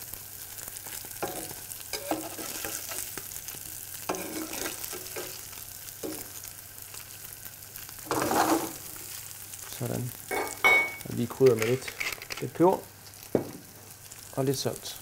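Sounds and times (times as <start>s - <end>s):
roe sizzling in a pan: 0.0s - 15.0s
metal spatula scraping a pan: 1.2s - 3.1s, 4.1s - 5.4s, 8.1s - 8.9s.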